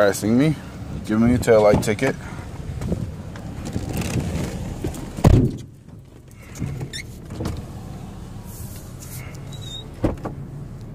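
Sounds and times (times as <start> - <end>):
car engine idling: 0.0 - 10.9
short squeak: 9.2 - 10.0.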